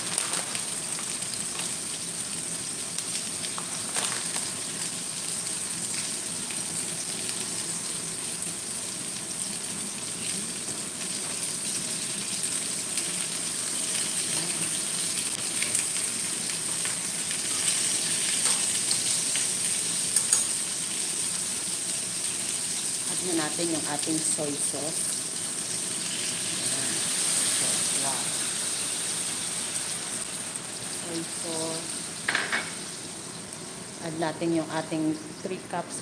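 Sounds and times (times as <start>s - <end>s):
chicken sizzling in hot oil: 0.0s - 35.1s
tongs clicking in a pan: 20.1s - 20.6s.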